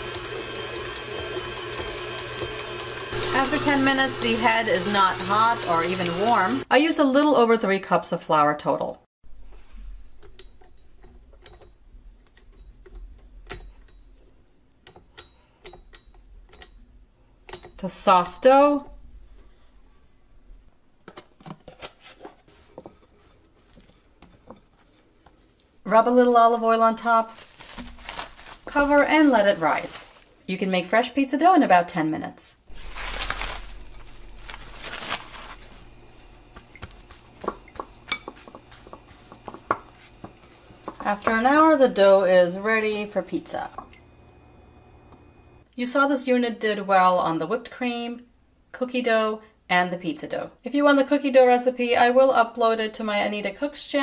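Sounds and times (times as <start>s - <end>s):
dough handling noises: 21.6s - 30.8s, 32.7s - 44.5s
plastic cling wrap crinkling: 26.6s - 30.8s, 32.7s - 43.7s.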